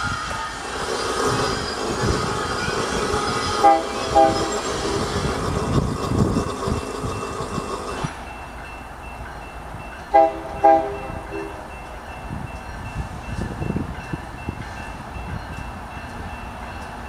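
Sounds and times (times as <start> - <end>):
steady train rumble: 0.0 - 17.0
locomotive air horn blasts: 3.6 - 4.6, 10.1 - 11.6.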